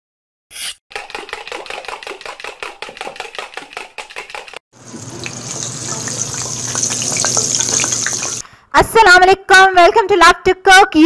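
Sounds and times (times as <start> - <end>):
food sizzling in hot oil: 4.8 - 8.4.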